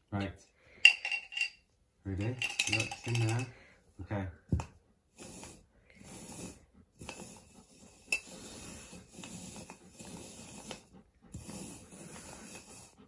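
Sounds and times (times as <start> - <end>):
dog breathing heavily: 4.8 - 13.0.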